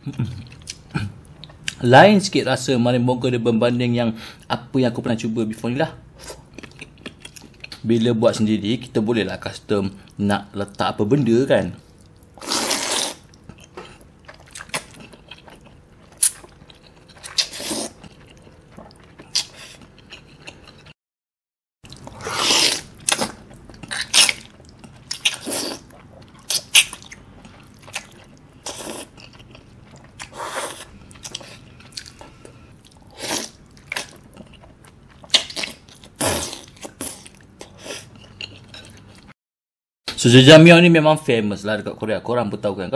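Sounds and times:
chewing: 6.2s - 7.8s, 11.9s - 21.0s, 21.9s - 39.3s
noodle slurping: 12.4s - 13.2s, 22.1s - 23.2s.

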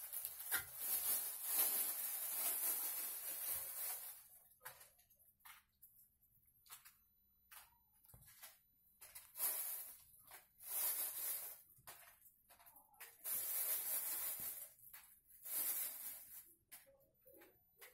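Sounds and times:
dry materials rustling: 0.0s - 4.4s, 8.4s - 16.5s.

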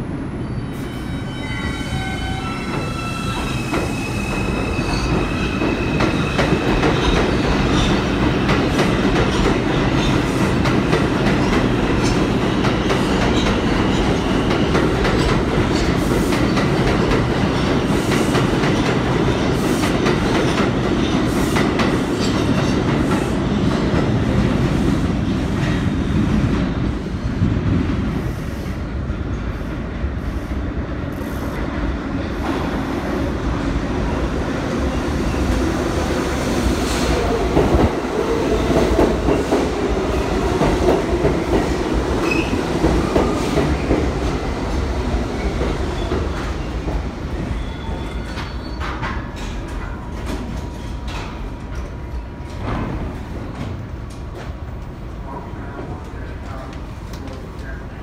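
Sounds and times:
subway train wheels clacking: 0.0s - 58.0s
train wheel squeal: 0.4s - 6.6s, 42.2s - 42.6s, 47.4s - 49.5s.

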